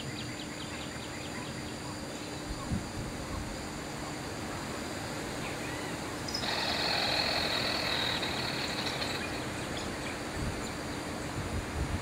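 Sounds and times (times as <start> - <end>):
outdoor background noise: 0.0 - 12.0
pulsing animal trill: 6.3 - 10.0.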